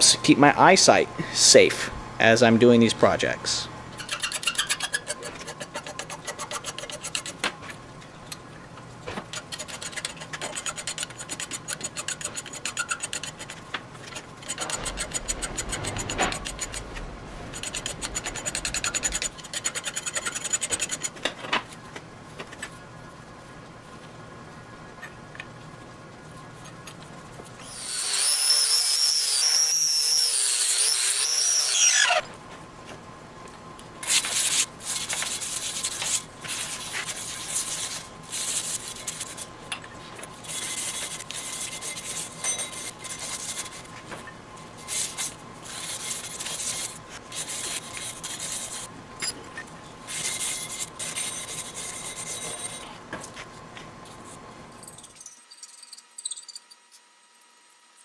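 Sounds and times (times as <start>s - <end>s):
welding arc hissing and crackling: 14.5s - 19.8s.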